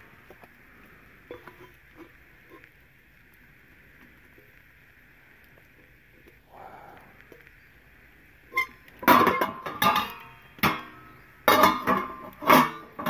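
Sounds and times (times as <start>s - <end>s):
metal dishes clanking: 9.0s - 13.0s.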